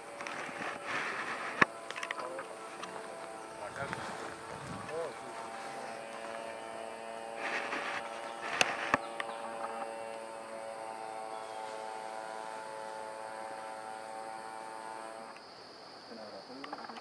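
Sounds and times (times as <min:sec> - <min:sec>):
short rustle: 0:00.0 - 0:06.6, 0:07.3 - 0:09.0
many-toned humming drone: 0:00.0 - 0:17.0.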